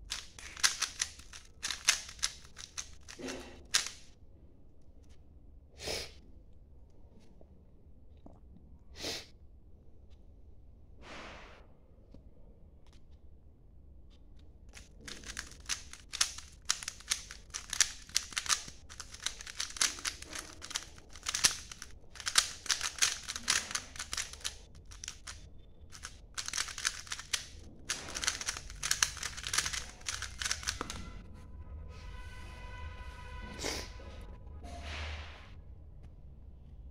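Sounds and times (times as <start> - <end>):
speed cube clicking turns: 0.0 - 4.1, 14.7 - 31.1.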